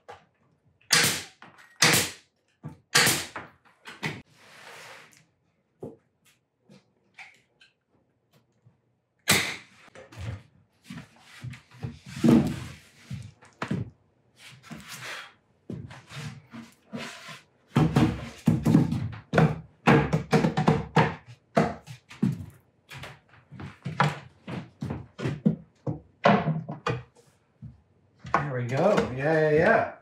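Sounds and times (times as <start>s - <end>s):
nail gun shot: 0.9s - 2.2s, 2.9s - 3.4s, 9.3s - 9.7s.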